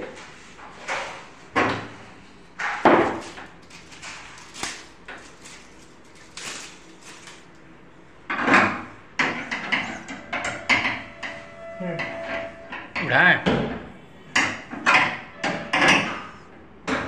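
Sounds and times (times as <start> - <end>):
metal struts knocking and clunking: 8.3 - 16.3.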